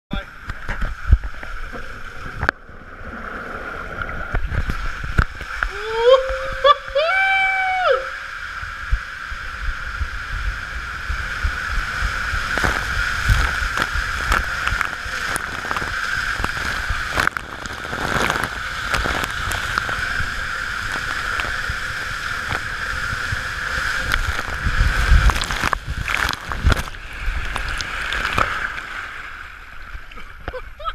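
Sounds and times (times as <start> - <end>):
water rushing down slide tube: 0.4 - 30.9
splashing into pool: 11.9 - 30.6.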